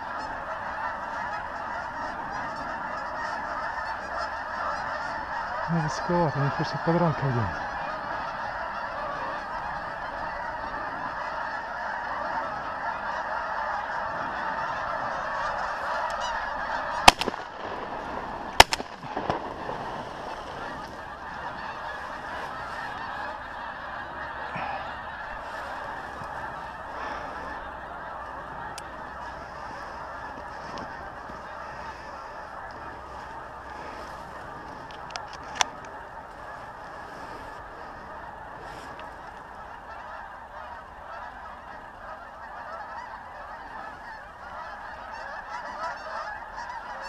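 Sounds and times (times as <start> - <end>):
geese honking: 0.0 - 47.0
shotgun shots: 17.0 - 18.0, 18.6 - 19.6.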